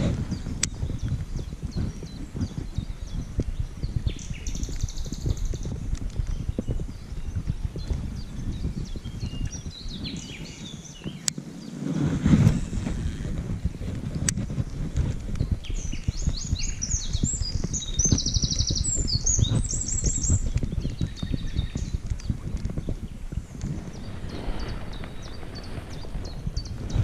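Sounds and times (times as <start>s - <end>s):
wind: 0.0s - 27.0s
songbird chirping and trilling: 0.3s - 11.8s, 15.4s - 27.0s.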